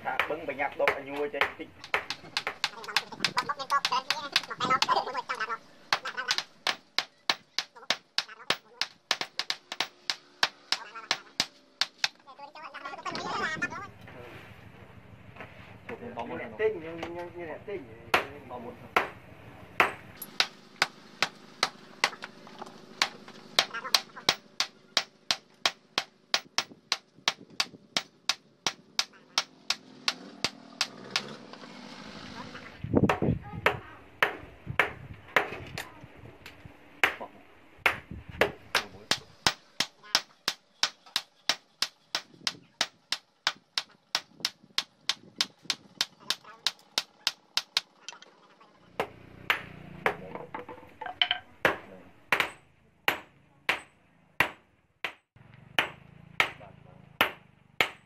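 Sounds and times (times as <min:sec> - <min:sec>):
hammer striking metal on anvil: 0:19.8 - 0:22.3.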